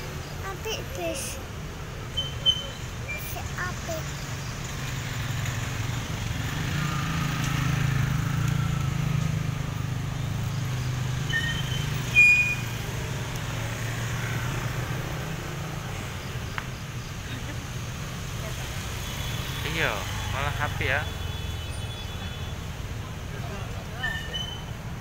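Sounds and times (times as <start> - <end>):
bus engine rumble: 0.0 - 6.6, 14.9 - 19.0
motor scooters: 0.0 - 25.0.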